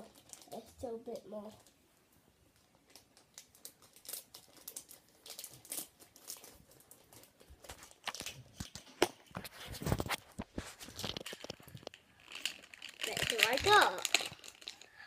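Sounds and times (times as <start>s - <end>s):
foil packet crinkling and tearing: 0.0s - 1.8s, 2.6s - 15.0s.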